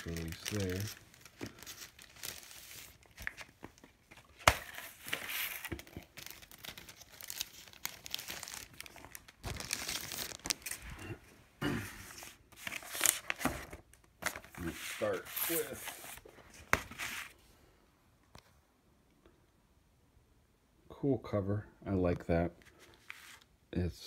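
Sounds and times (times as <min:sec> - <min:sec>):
paper and packaging rustling: 0:00.0 - 0:11.0, 0:11.8 - 0:17.4.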